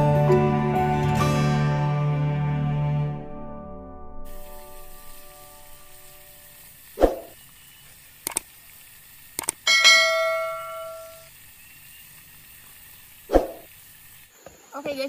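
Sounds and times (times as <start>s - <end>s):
notification bell ding: 9.7s - 11.2s.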